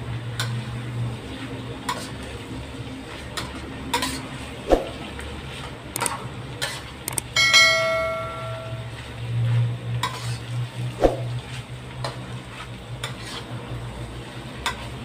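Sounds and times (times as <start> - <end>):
bell-like ding: 7.2 - 9.0
metal spatula scraping wok: 10.0 - 10.6, 12.5 - 13.7.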